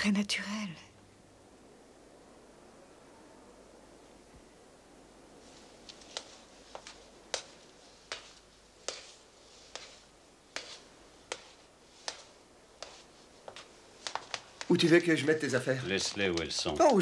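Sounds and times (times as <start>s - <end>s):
hard-soled footsteps on stairs: 5.9s - 17.0s.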